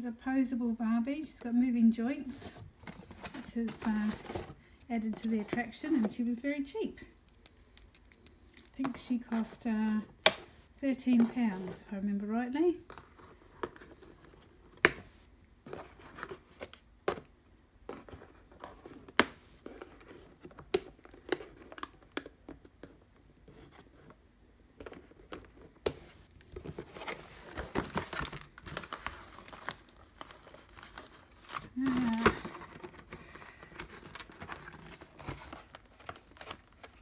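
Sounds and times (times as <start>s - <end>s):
packaging rustling and crinkling: 2.2s - 6.3s, 24.8s - 37.0s.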